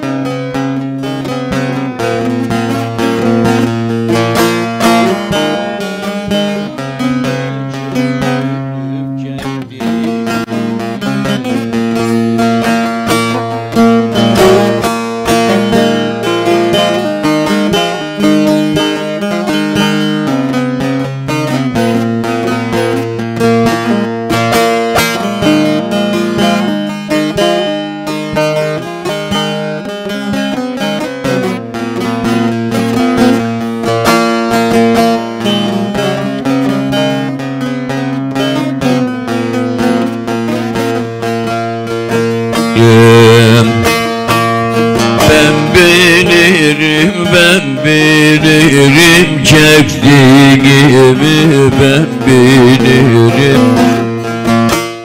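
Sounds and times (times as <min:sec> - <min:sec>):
plucked long-necked lute melody: 0:00.0 - 0:55.0.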